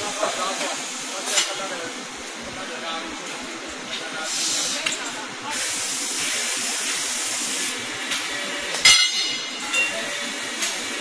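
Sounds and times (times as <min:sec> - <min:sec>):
tube bending machine hissing: 0:04.2 - 0:11.0.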